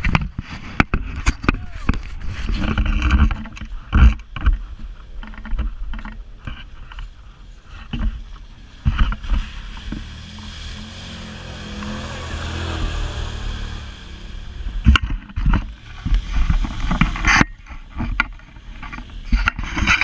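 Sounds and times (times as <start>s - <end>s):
vehicle engine running: 0.0s - 20.0s
vehicle knocks and jolts: 14.4s - 20.0s.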